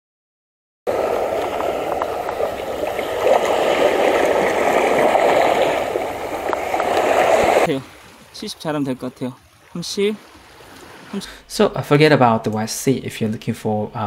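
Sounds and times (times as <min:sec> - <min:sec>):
seawater splashing over rocks: 0:00.9 - 0:11.2.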